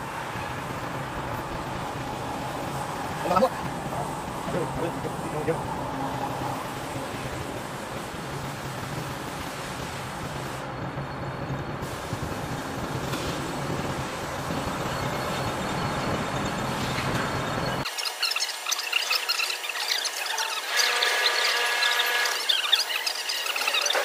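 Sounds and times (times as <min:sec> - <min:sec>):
heavy machinery humming: 0:00.0 - 0:17.9.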